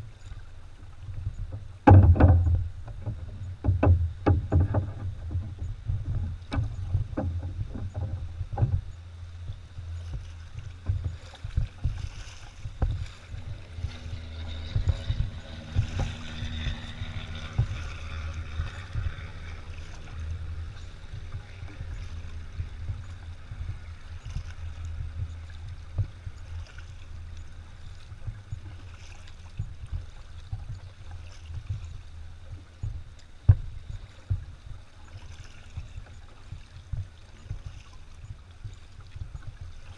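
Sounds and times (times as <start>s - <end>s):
paddle splashing in water: 0.0s - 39.9s
steady low rumble: 0.0s - 39.9s
traffic hum on a bridge: 0.0s - 39.9s.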